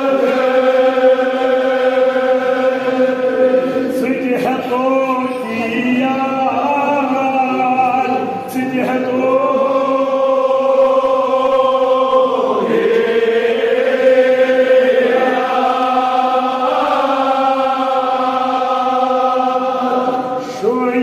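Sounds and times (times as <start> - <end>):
men chanting an elegy: 0.0 - 21.0.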